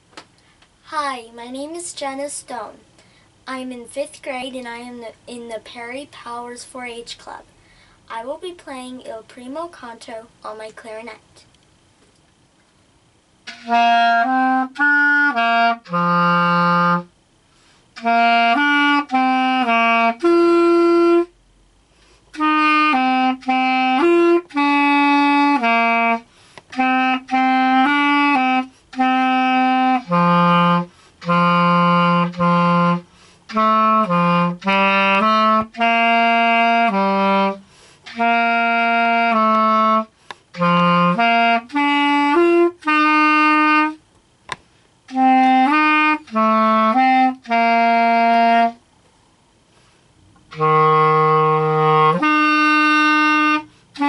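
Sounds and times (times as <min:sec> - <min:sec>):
clarinet playing a melody: 0:13.4 - 0:17.1, 0:17.9 - 0:21.4, 0:22.3 - 0:44.0, 0:45.1 - 0:48.8, 0:50.5 - 0:54.0.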